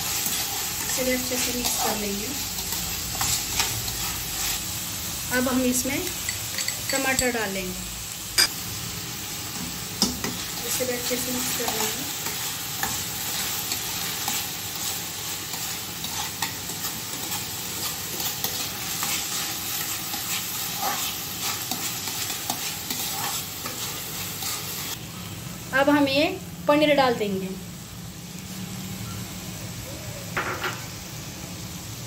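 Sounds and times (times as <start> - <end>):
vegetables sizzling in oil: 0.0 - 32.0.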